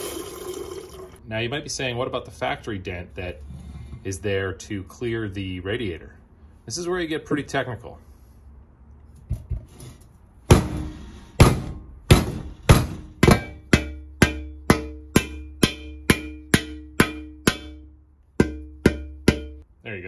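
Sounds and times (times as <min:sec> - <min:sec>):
hammer striking metal: 0:10.5 - 0:19.6.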